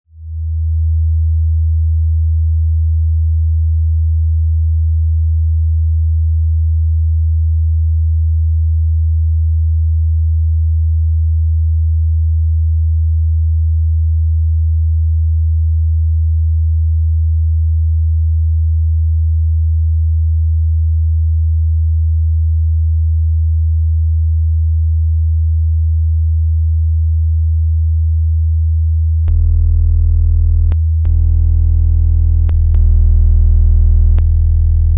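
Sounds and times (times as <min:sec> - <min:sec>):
deep electronic tone: 0:29.3 - 0:34.9.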